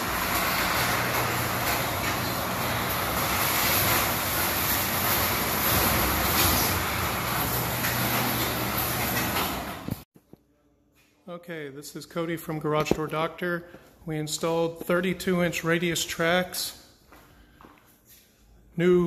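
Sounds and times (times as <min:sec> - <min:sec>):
garage door opener humming: 0:00.0 - 0:10.1
garage door rollers rumbling: 0:00.0 - 0:10.1.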